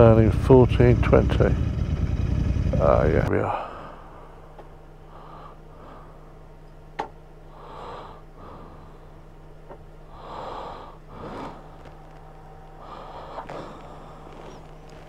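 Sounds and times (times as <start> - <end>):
steady low hum: 0.0 - 15.0
person breathing into microphone: 10.1 - 15.0.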